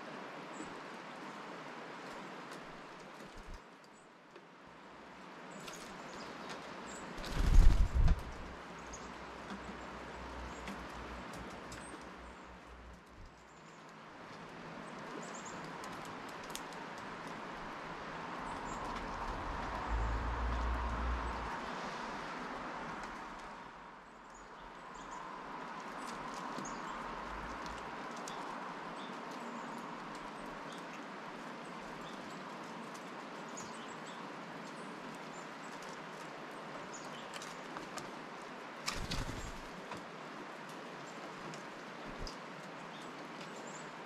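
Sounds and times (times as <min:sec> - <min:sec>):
birds pecking and landing: 0:02.0 - 0:03.7, 0:05.6 - 0:08.5, 0:12.8 - 0:17.8, 0:38.8 - 0:40.0.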